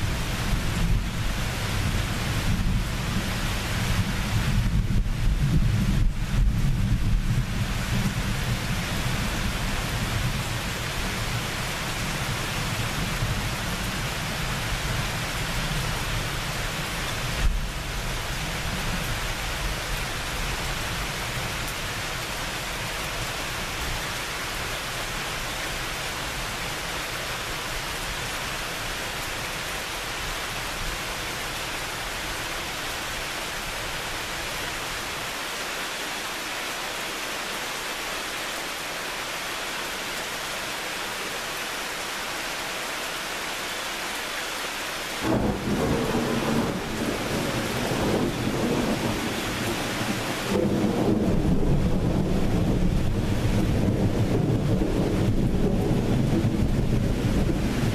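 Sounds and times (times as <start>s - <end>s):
low rumble of thunder: 0.0s - 19.8s, 45.2s - 57.9s
steady rain falling: 0.0s - 57.9s.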